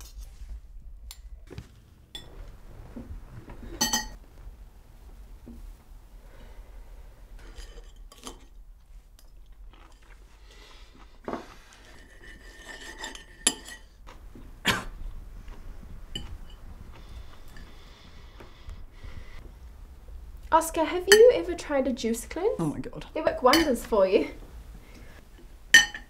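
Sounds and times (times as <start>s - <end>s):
cutlery clinking on plates: 25.8s - 26.0s.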